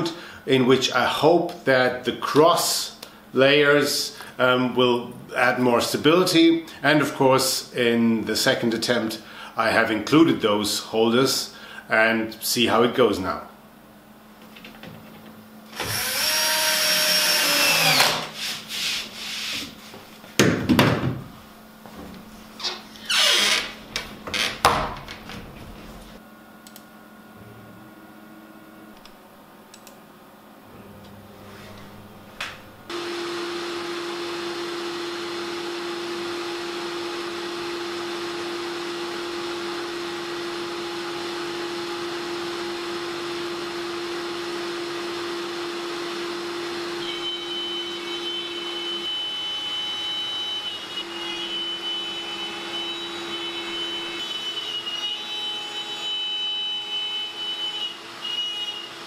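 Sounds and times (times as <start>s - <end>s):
router bit whining into wood: 15.7s - 18.4s, 38.6s - 59.0s
cnc router running: 15.8s - 18.3s, 32.9s - 59.0s.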